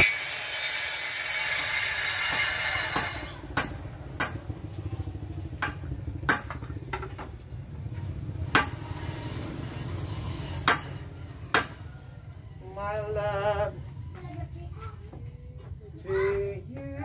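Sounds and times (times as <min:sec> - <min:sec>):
circular saw cutting wood: 0:00.0 - 0:03.5, 0:08.6 - 0:11.1
low steady rumble: 0:01.9 - 0:17.0.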